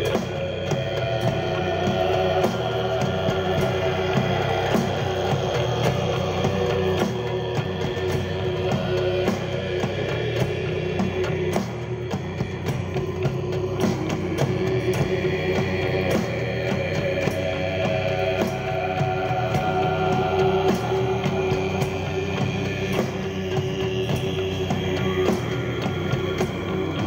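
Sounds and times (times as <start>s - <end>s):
heavy metal guitar: 0.0s - 27.0s.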